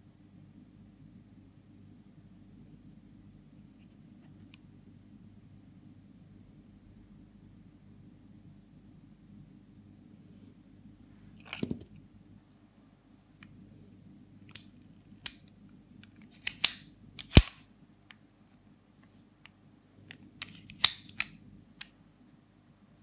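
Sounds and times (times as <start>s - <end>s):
pistol metallic clicks: 16.3s - 17.6s.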